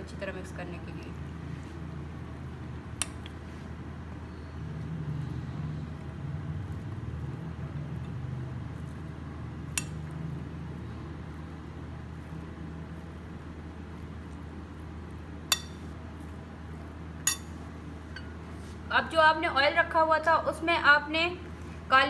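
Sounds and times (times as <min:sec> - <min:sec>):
spoon clinking on glass: 0:17.3 - 0:17.6.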